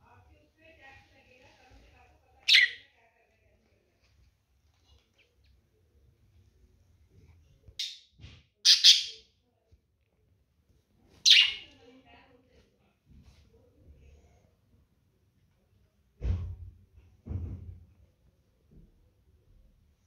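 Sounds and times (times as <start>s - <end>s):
budgerigars chirping: 8.7s - 9.2s, 11.3s - 11.6s.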